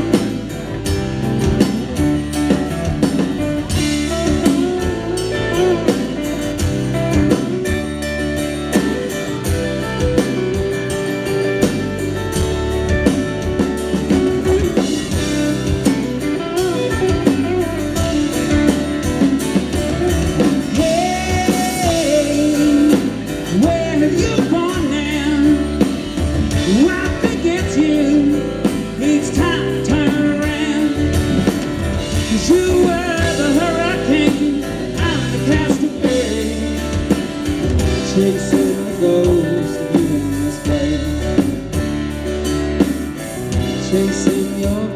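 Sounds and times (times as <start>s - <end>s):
live rock band playing: 0.0s - 44.9s
person singing: 19.2s - 41.8s, 43.5s - 44.9s.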